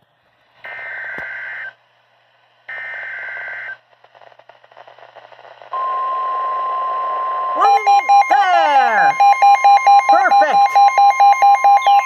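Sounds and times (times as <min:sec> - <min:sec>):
warning alarm tone: 0:05.8 - 0:12.0
buzzy digital data bursts: 0:07.6 - 0:12.0.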